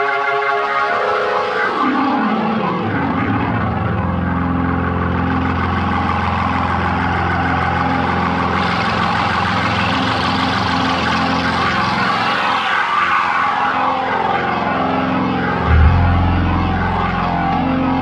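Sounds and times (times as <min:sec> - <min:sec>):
organ chord: 0:15.5 - 0:18.0
high organ notes: 0:15.6 - 0:17.6.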